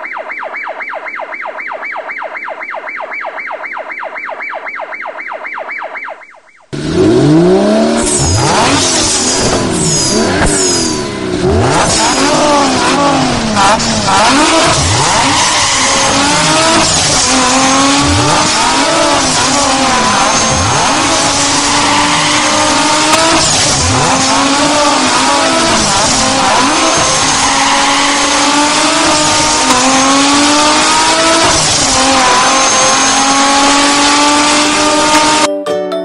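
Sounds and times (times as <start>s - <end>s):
engine revving: 6.7s - 35.5s.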